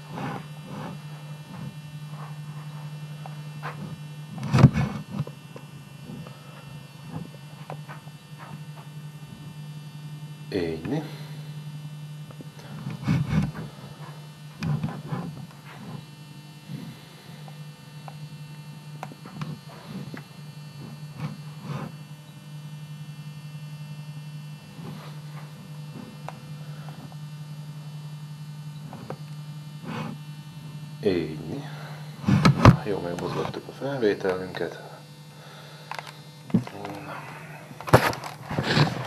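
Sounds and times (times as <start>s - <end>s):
electrical mains hum: 0.0s - 39.0s
camcorder handling knocks and rustles: 35.9s - 37.0s, 37.8s - 39.0s.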